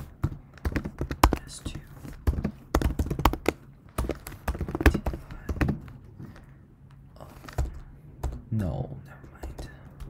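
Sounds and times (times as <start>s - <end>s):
keyboard typing: 0.0s - 6.5s, 7.4s - 10.0s.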